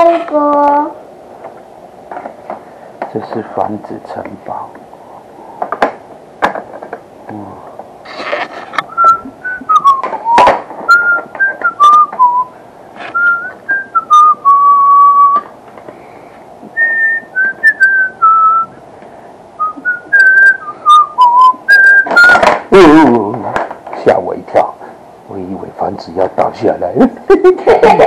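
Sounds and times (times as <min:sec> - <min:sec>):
person whistling a tune: 0:08.9 - 0:15.5, 0:16.8 - 0:18.8, 0:19.6 - 0:22.6.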